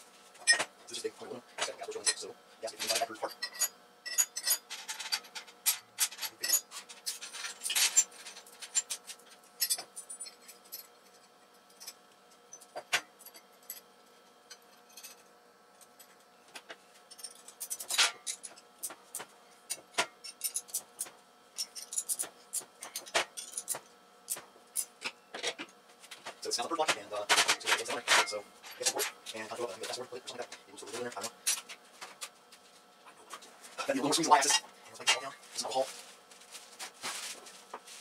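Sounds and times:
metal parts clinking and scraping: 2.8s - 9.0s.

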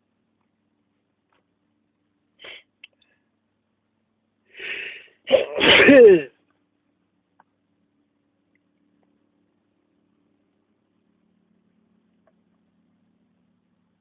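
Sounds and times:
person sneezing: 2.4s - 2.7s, 4.6s - 6.3s.

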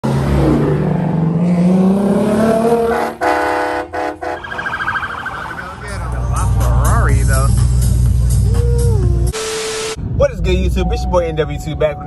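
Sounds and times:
car engine revving: 0.0s - 10.6s
car horn honking: 2.9s - 5.7s
high steady tone: 4.3s - 7.0s.

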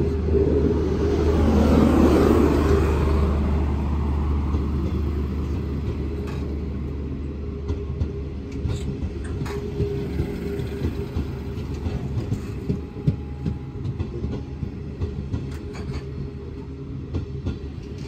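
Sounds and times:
train rolling past: 0.0s - 18.0s
wheels clicking on rail joints: 7.7s - 18.0s.

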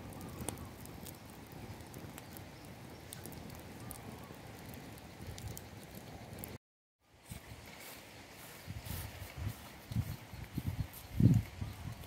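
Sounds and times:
fire snapping: 0.0s - 6.6s
wood fire crackling: 0.0s - 6.6s, 9.2s - 12.0s.

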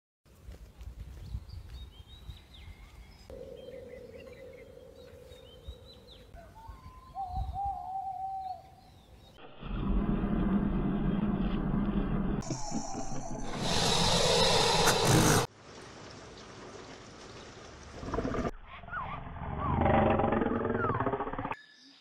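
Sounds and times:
owl hooting: 3.3s - 8.7s, 12.4s - 15.5s.

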